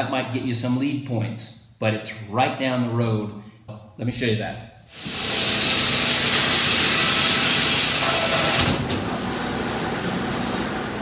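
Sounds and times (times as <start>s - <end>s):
circular sawmill running: 5.0s - 11.0s.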